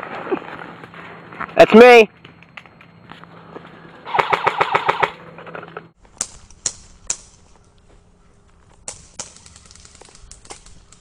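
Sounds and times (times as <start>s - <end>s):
airsoft gun full-auto burst: 4.1s - 5.2s.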